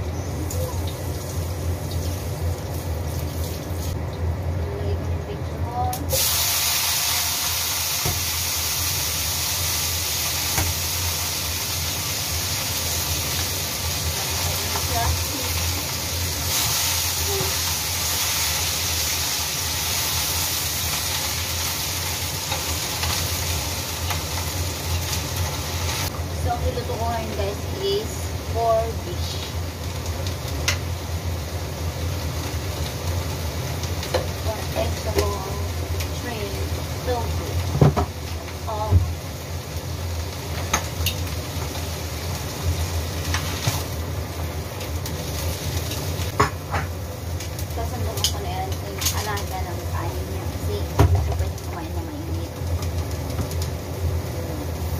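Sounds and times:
food sizzling in a pan: 0:00.0 - 0:04.1, 0:04.8 - 0:54.9
low steady hum: 0:00.0 - 0:06.2
steady low hum with hiss: 0:00.0 - 0:54.9.

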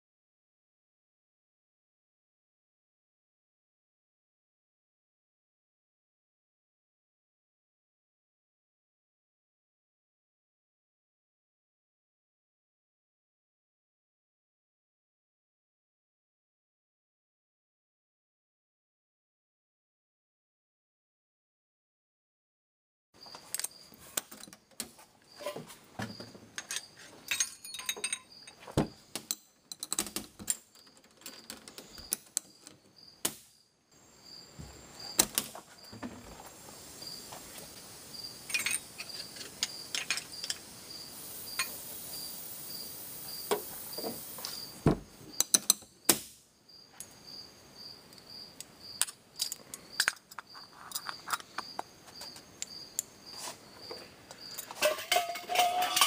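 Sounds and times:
metal clicks and clinks: 0:26.6 - 0:32.8, 0:38.5 - 0:40.6, 0:49.0 - 0:52.7, 0:54.5 - 0:56.0
soft steady hiss: 0:34.0 - 0:56.0.

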